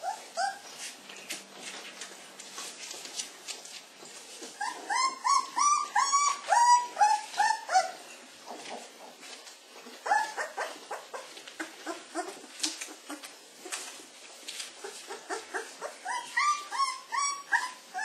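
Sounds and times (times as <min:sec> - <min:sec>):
puppies whining and squealing: 0:00.0 - 0:01.0, 0:04.4 - 0:08.9, 0:09.8 - 0:14.0, 0:14.7 - 0:18.0.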